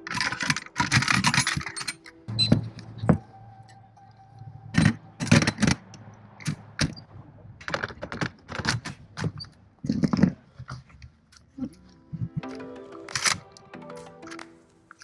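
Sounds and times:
metal gun parts clicking: 0.0 - 2.5.

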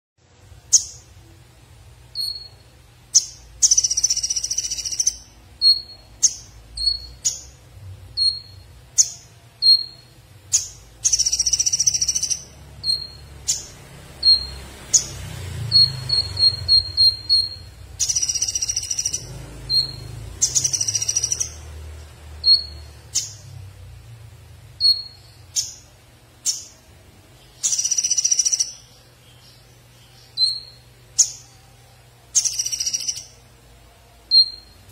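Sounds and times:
high buzzing bird trills: 2.1 - 7.6, 8.2 - 21.8, 22.4 - 23.5, 24.8 - 31.7, 32.3 - 33.4, 34.3 - 34.9
sunbird singing: 2.1 - 23.7, 24.7 - 34.9.

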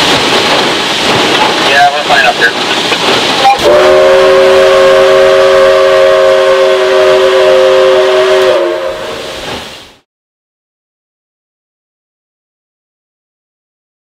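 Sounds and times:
locomotive rumble and hiss: 0.0 - 10.0
steam locomotive whistle: 3.5 - 9.6.

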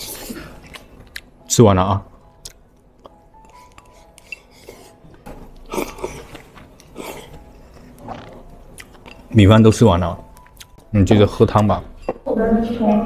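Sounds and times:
chopsticks scraping ceramic bowl: 3.4 - 5.0.

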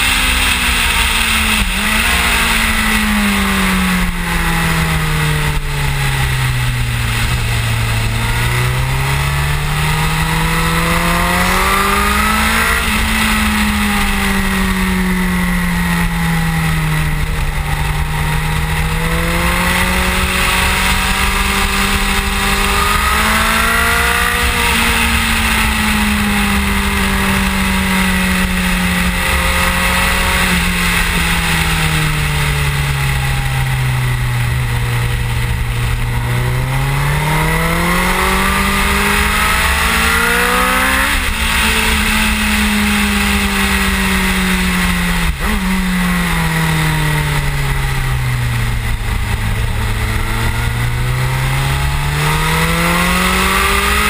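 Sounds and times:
motorcycle engine revving at speed: 0.0 - 54.0.

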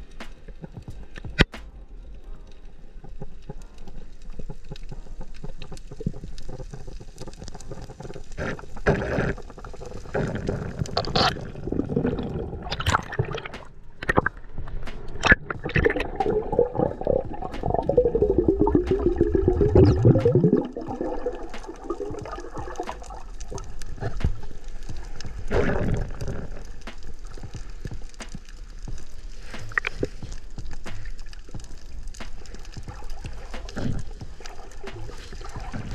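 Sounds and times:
water gurgling and sloshing: 2.4 - 35.9
swirling gurgle sweeping down: 15.2 - 23.6.

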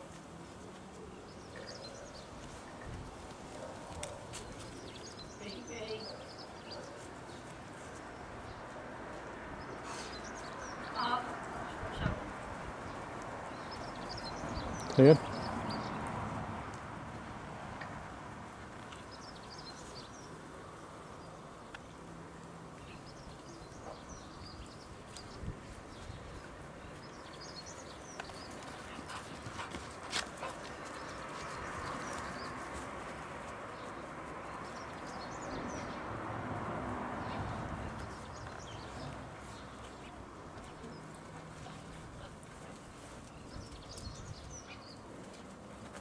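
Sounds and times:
puppies playing: 27.7 - 35.2.

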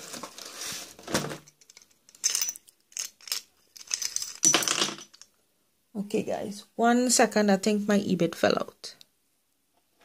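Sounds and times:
metal bits rattling in plastic case: 1.2 - 5.3.

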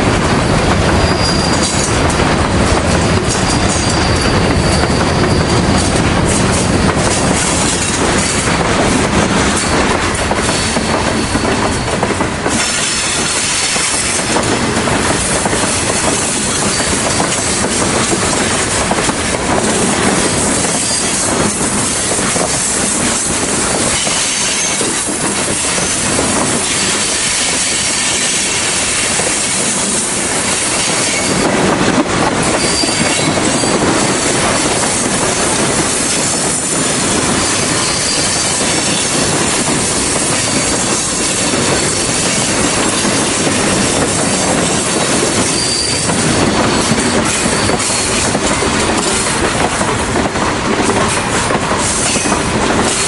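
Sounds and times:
steel wheels clattering on rails: 0.0 - 53.0
high wheel squeal: 0.4 - 1.9, 3.4 - 5.9, 32.6 - 33.9, 37.4 - 39.1, 45.4 - 48.2.

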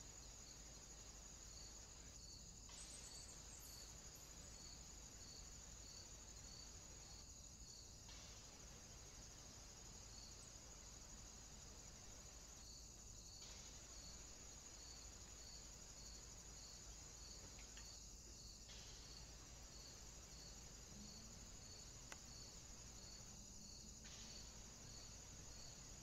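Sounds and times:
insect chirring: 0.0 - 26.0.

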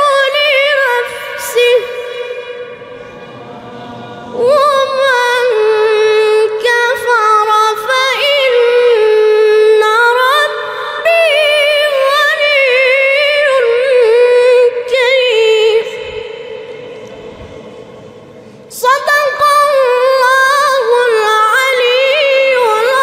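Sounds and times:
man chanting in high register: 2.7 - 6.0, 16.0 - 20.0.

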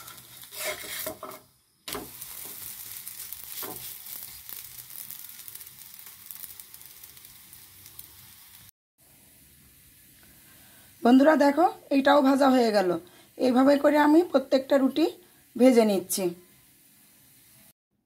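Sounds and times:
wooden spatula scraping pan: 0.0 - 4.6
bread sizzling in oil: 0.0 - 17.8.

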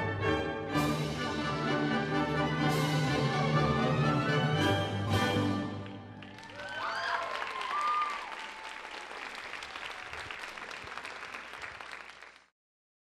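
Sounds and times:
audience applauding: 5.6 - 12.5
high cheers: 6.2 - 11.4.

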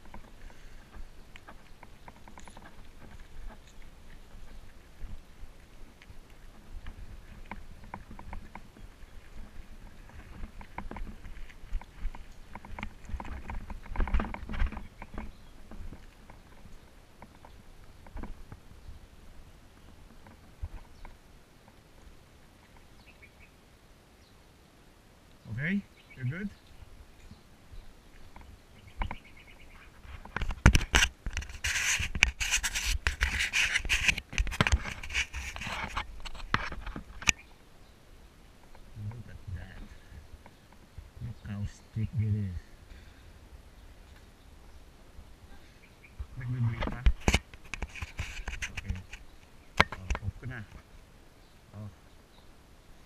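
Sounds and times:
mountain bike rattling over rough ground: 0.0 - 5.2, 6.4 - 18.6
hand rubbing on camera: 29.8 - 37.2, 46.4 - 49.3.

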